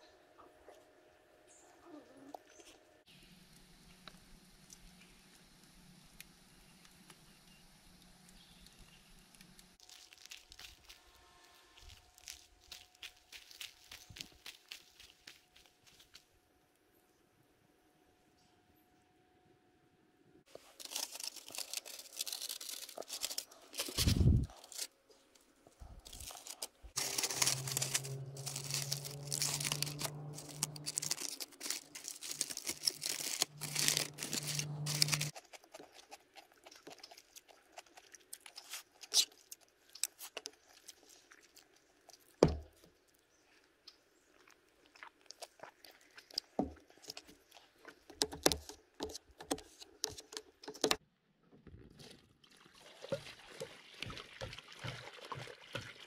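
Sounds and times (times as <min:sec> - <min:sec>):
aluminium foil crinkling: 0:08.3 - 0:16.2, 0:20.5 - 0:42.4
crunching: 0:08.6 - 0:16.2, 0:20.5 - 0:42.9
low steady hum: 0:25.8 - 0:35.3.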